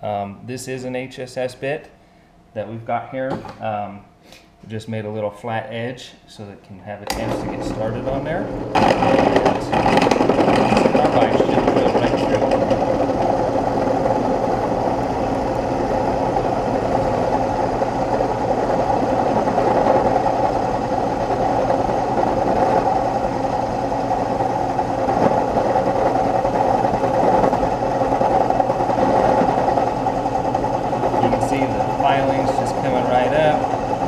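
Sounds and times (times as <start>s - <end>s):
drill press humming: 7.1s - 34.0s.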